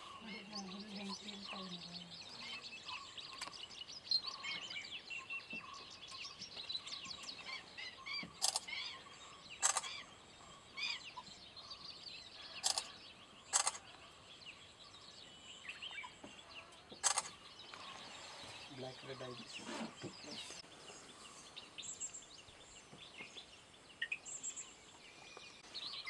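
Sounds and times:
birds chirping and calling: 0.0 - 26.0
sharp crackling bursts: 9.6 - 9.9, 13.5 - 13.8.

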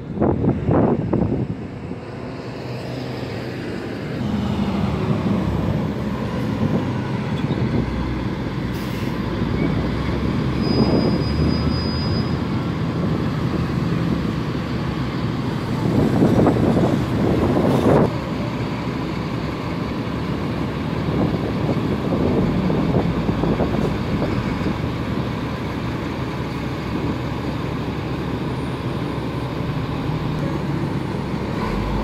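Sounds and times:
truck engine droning: 0.0 - 32.0
high-pitched squeal: 8.8 - 12.5.

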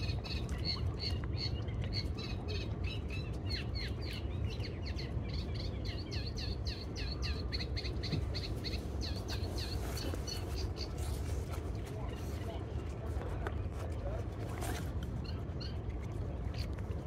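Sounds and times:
birds chirping: 0.0 - 12.9
steady low rumble: 0.0 - 17.0.

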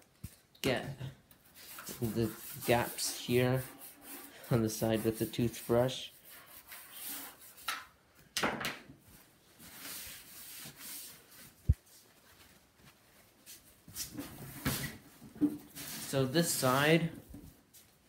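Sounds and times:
paper towel rubbing plastic: 1.5 - 7.6.

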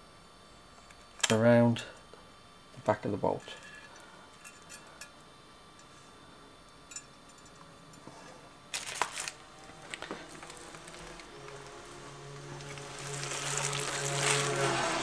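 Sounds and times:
wire clicking and scraping: 6.9 - 14.8.

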